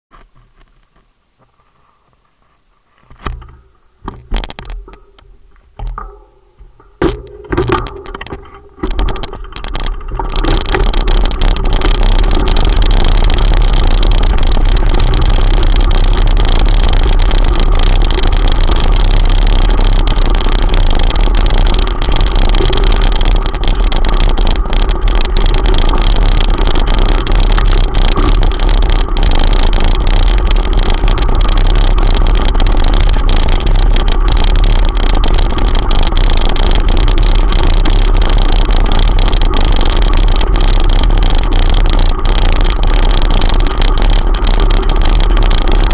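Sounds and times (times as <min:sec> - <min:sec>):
bike tyres rumbling on gravel: 0:00.1 - 0:45.9.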